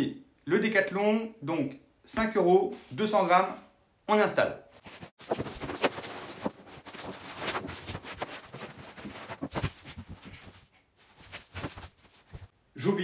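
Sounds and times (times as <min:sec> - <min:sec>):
foam mat rustling on wooden floor: 0:04.8 - 0:12.5.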